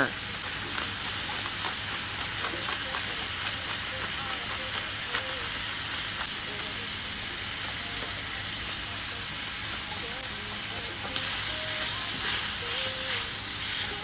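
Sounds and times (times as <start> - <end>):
mushrooms and onions sizzling in a pan: 0.0 - 14.0
small pops of frying: 0.3 - 6.7.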